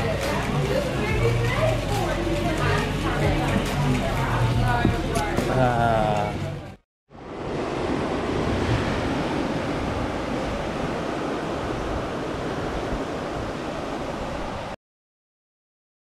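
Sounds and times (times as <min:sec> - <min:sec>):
surf washing onto beach: 0:07.2 - 0:14.8
wind on microphone: 0:07.2 - 0:14.8.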